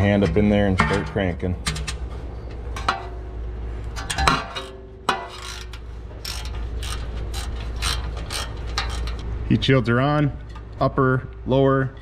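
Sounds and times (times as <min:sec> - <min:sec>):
wrench ratcheting clicks: 0:05.4 - 0:09.2.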